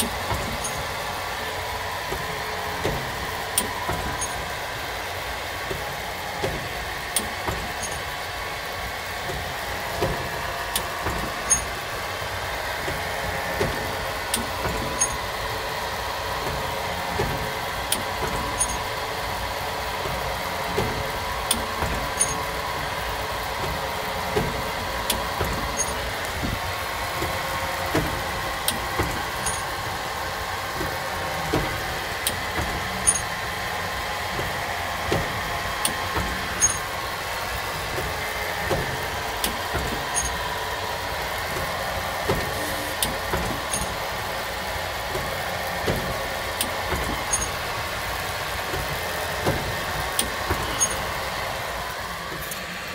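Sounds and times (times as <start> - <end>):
light mechanical knocks: 0.0 - 1.0, 2.0 - 4.6, 5.6 - 8.2, 9.2 - 11.9, 12.8 - 15.4, 16.4 - 19.0, 20.0 - 22.6, 23.6 - 29.8, 30.7 - 33.5, 34.3 - 37.0, 37.8 - 40.5, 41.4 - 44.1, 45.0 - 47.7, 48.6 - 51.2
machine mechanical hum: 0.0 - 52.9
sharp machine click: 21.5 - 22.5, 27.9 - 29.8, 32.2 - 33.4, 35.2 - 37.0, 42.3 - 44.0.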